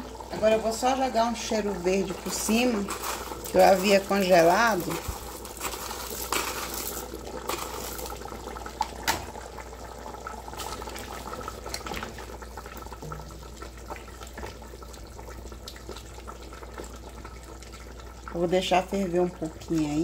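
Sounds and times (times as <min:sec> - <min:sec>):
broth simmering and bubbling: 0:00.0 - 0:20.0
spatula stirring: 0:02.0 - 0:08.3.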